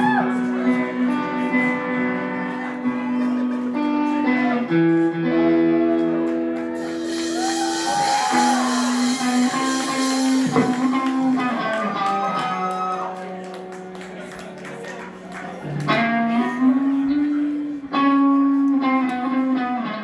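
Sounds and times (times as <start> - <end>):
live rock band playing: 0.2 - 20.0
cymbal wash: 6.8 - 10.9.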